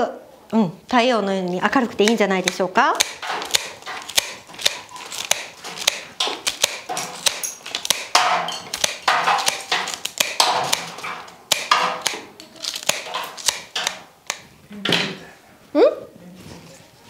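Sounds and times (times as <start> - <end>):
scissors snipping stems: 1.5 - 14.4.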